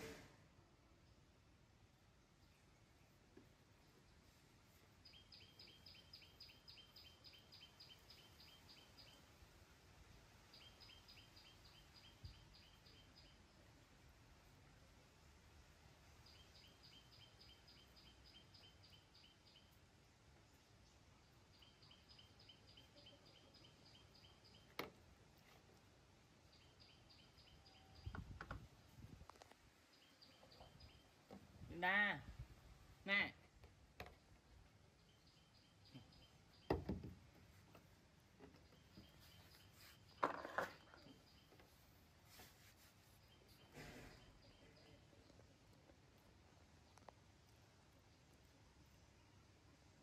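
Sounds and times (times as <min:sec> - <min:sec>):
soft thumps on wooden deck: 0:36.7 - 0:37.2.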